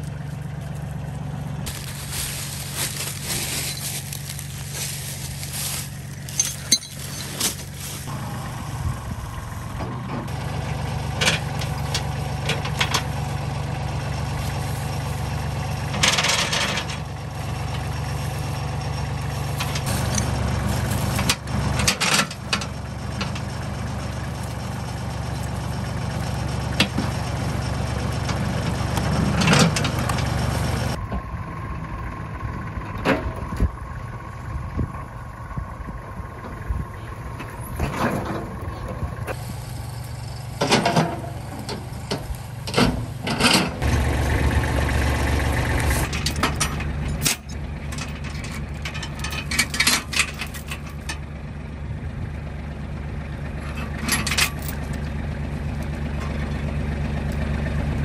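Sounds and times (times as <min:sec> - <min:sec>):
tractor diesel engine idling: 0:00.0 - 0:58.0
chain clinking and knocking: 0:06.3 - 0:07.8.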